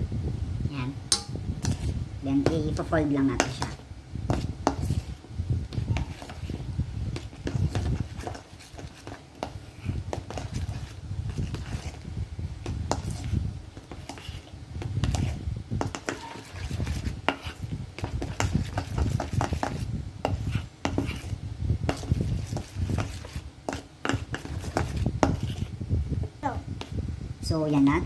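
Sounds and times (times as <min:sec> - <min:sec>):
metal spoon scraping steel bowl: 0:16.0 - 0:17.6.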